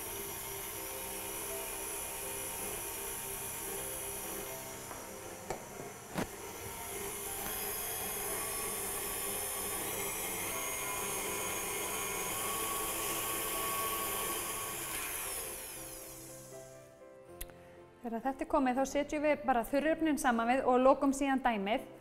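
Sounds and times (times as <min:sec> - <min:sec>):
stand mixer running: 0:00.0 - 0:16.6.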